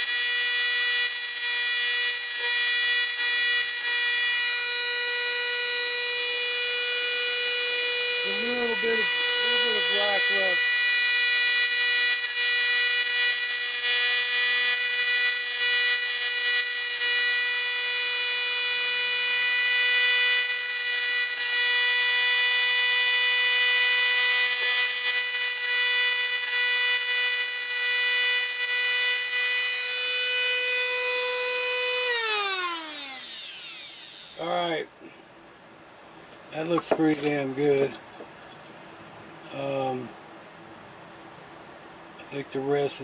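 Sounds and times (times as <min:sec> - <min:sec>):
rotary tool high whine: 0:00.0 - 0:34.9
rasping grind of metal sanding: 0:08.1 - 0:10.7
rotary tool spinning down: 0:26.2 - 0:34.5.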